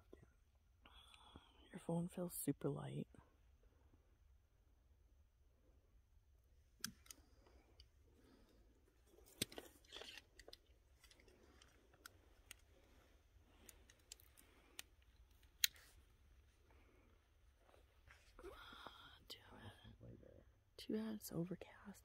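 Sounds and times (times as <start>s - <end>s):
faint clicks and crackles: 6.7s - 18.4s.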